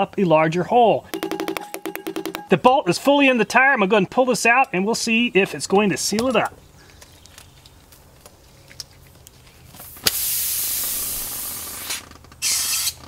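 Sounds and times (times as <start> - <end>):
air hissing out of a tire: 9.8 - 13.0.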